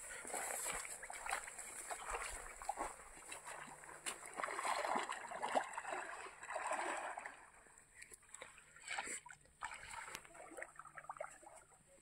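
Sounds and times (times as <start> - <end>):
fish splashing in water: 0.8 - 7.5.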